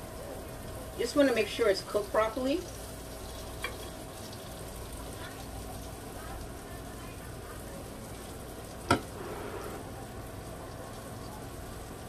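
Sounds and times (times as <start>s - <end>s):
fish frying in oil: 0.4s - 9.2s.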